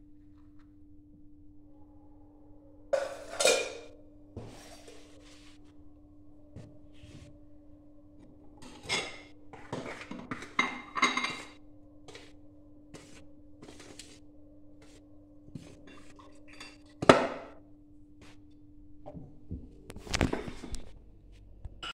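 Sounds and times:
steady low hum: 0:00.0 - 0:21.8
dishes and cutlery clinking: 0:03.0 - 0:04.9, 0:08.6 - 0:12.2, 0:15.6 - 0:17.6.

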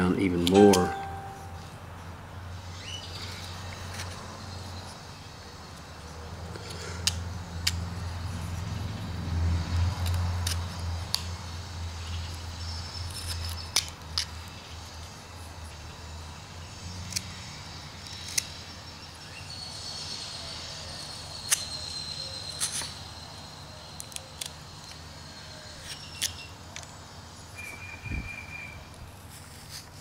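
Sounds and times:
faint steady hum: 0:00.0 - 0:03.8
knife carving wood snicks: 0:09.8 - 0:11.4, 0:12.2 - 0:14.9, 0:17.0 - 0:18.7, 0:21.0 - 0:23.0.

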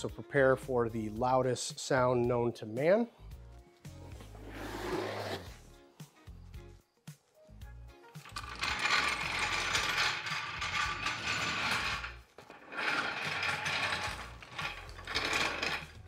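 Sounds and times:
floor jack rattling on hard floor: 0:08.2 - 0:16.0.

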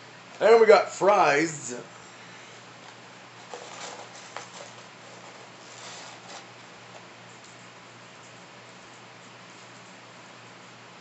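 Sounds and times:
steady low hum: 0:00.0 - 0:11.0
paper carton rustling: 0:02.8 - 0:07.1.

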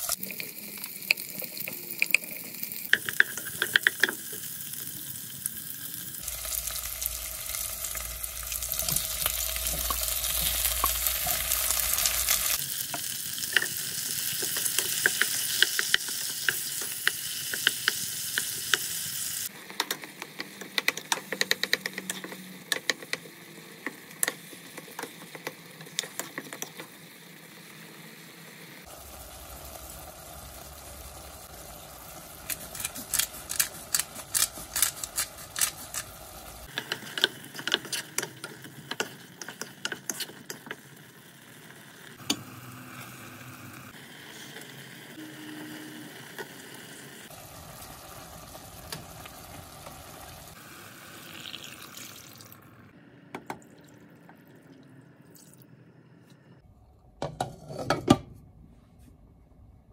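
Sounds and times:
onions and tomatoes cooking: 0:00.0 - 0:59.2.

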